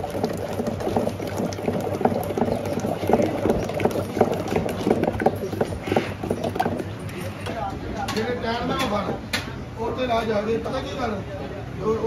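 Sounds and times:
liquid bubbling and sloshing: 0.0s - 7.7s.

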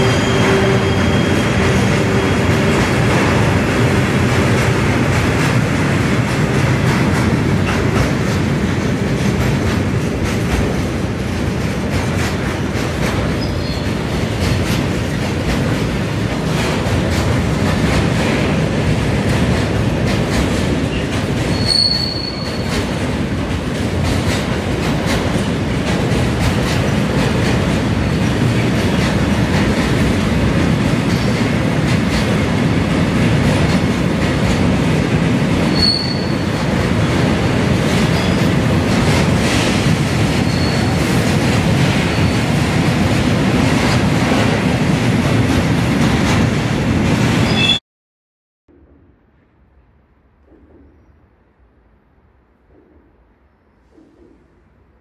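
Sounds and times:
wheel squeal: 0.0s - 2.5s, 13.4s - 14.0s, 20.9s - 22.8s, 35.7s - 36.5s, 40.4s - 41.0s
train wheels rumbling on rails: 0.0s - 47.8s, 52.6s - 54.8s.

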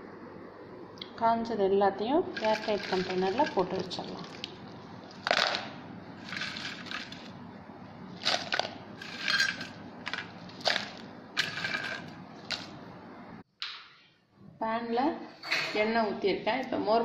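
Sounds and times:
dried chillies rustling into bowl: 2.3s - 4.4s, 5.1s - 7.4s, 8.2s - 12.8s.

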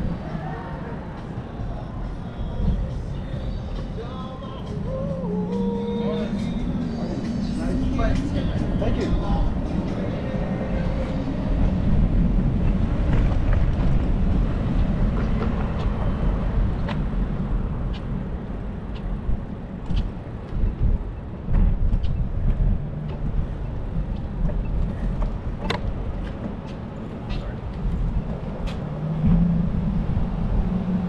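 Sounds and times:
wind rumble on microphone: 0.0s - 31.0s
bicycle rolling: 19.7s - 31.0s.

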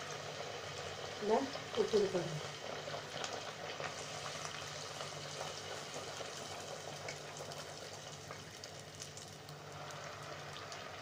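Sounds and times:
hot oil sizzling and crackling: 0.0s - 11.0s.

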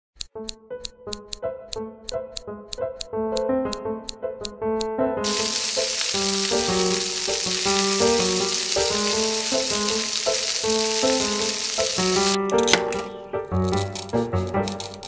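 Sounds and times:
light keyboard music: 0.2s - 15.0s
frying sizzle: 5.2s - 12.4s, 13.5s - 15.0s.

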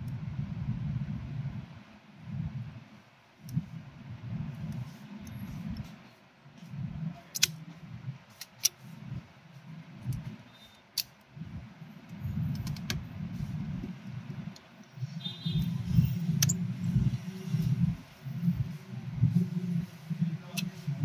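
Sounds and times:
repair tool clicks: 7.4s - 7.6s, 16.4s - 16.6s.

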